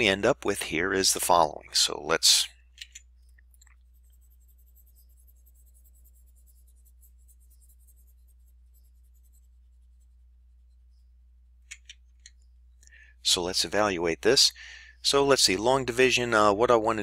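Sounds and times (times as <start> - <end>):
low electrical hum: 0.0 - 17.0
stylus scratching on pen tablet: 3.5 - 11.1.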